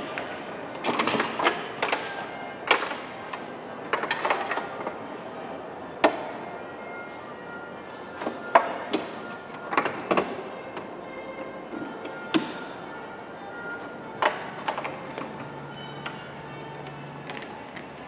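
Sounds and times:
faint music: 0.0s - 18.0s.

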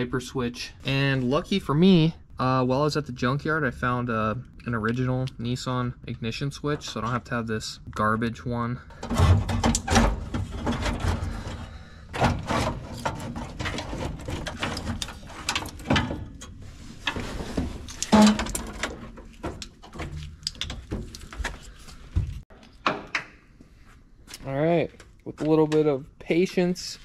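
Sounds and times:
plastic plugs and wires clicking: 17.9s - 21.6s.

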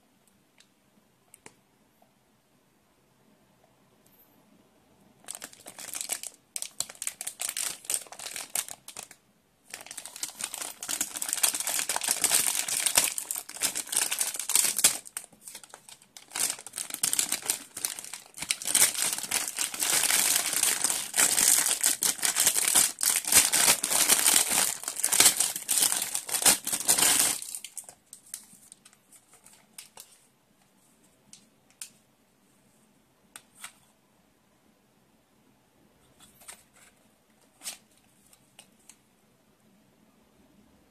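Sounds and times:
plastic packaging crinkling: 5.2s - 30.2s.

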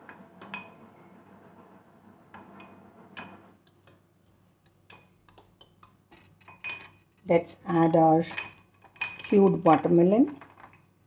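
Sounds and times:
spoon clinking on glass bowl: 6.5s - 7.0s, 7.8s - 9.9s.

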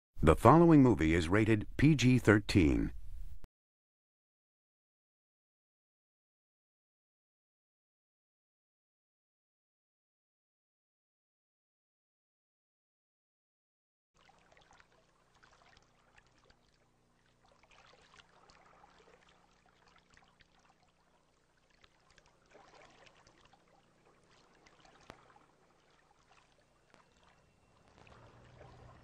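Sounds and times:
steady low hum: 0.2s - 3.5s
faint hiss and crackle: 14.6s - 29.0s.

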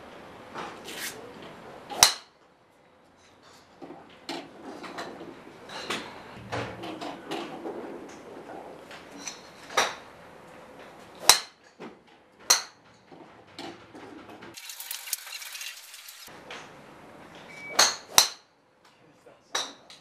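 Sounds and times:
golf club striking ball: 2.0s - 2.3s, 11.2s - 11.6s, 12.5s - 12.8s, 17.8s - 18.5s.

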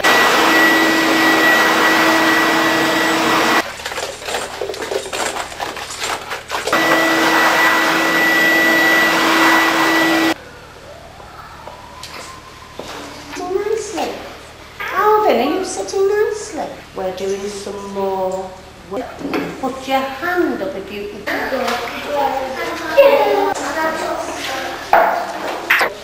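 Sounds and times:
floor scrubber whining: 0.0s - 4.9s, 5.7s - 10.4s.

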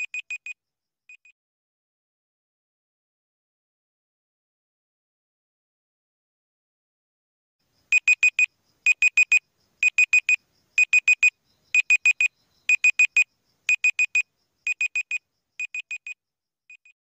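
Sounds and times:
timer beeping: 8.0s - 17.0s.

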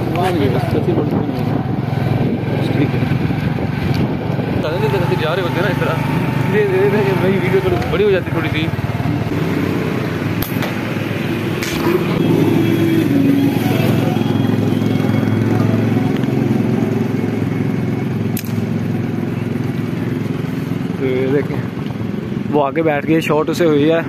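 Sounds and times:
motorcycle engine running: 0.0s - 24.0s
sharp clicks: 10.3s - 10.8s, 18.3s - 18.6s.

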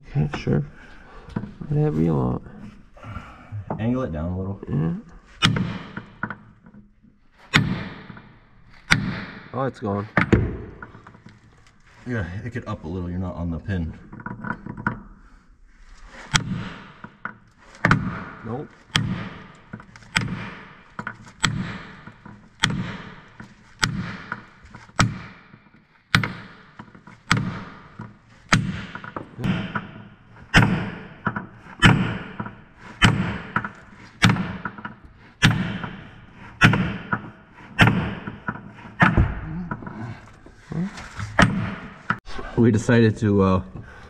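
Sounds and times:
sledgehammer striking metal: 5.4s - 6.2s, 7.5s - 11.1s, 16.3s - 17.2s, 17.8s - 40.1s.

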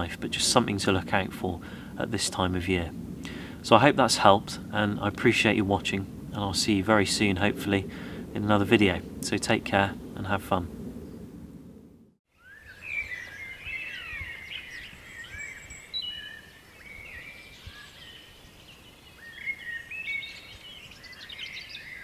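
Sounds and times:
small birds singing and chirping: 12.3s - 22.0s.

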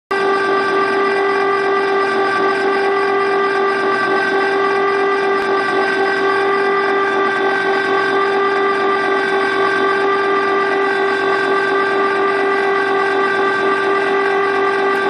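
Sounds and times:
ice cream maker motor whining: 0.1s - 15.0s.

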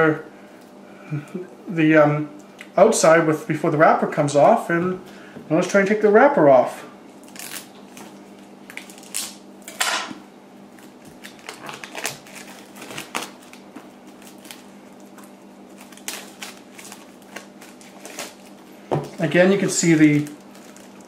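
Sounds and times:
knife slitting plastic wrap: 7.2s - 7.7s, 10.8s - 21.0s
cellophane crinkling: 7.2s - 9.4s, 10.7s - 21.0s.

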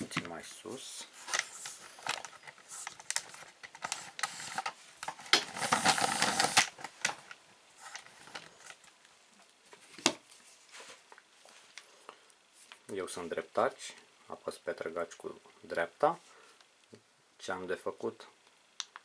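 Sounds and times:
rustling and scraping: 0.0s - 8.9s, 9.6s - 11.8s.

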